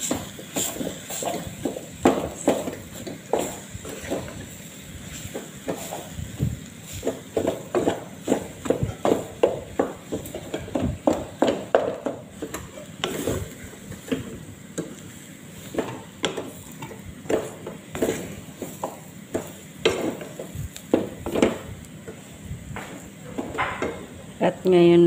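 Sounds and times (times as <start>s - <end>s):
wooden spatula scraping pot: 0.1s - 14.4s.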